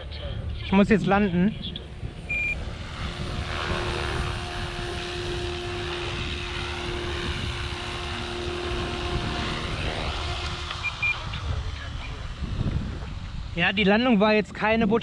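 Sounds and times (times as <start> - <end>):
rc helicopter rotor and motor: 0.0 - 15.0
short high beeps: 2.3 - 2.6, 10.8 - 11.2.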